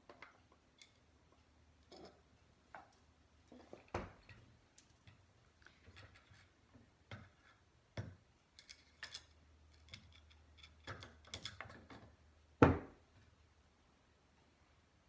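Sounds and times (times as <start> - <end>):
small metal clicks and clinks: 0.1 - 2.3, 8.5 - 12.1.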